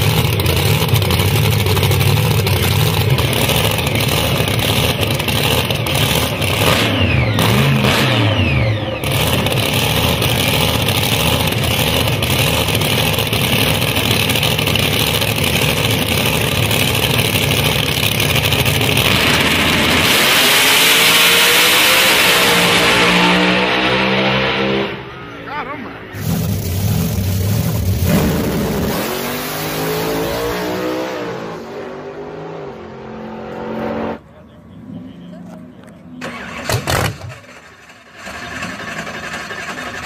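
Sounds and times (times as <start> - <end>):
car accelerating away: 0.0 - 25.2
car engine rumbling and revving: 0.0 - 40.0.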